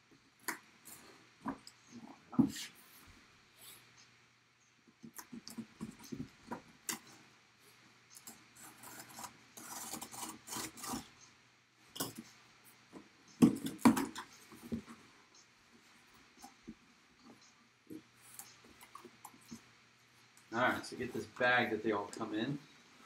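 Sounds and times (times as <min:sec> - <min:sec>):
cardboard rasping: 0:08.6 - 0:11.1.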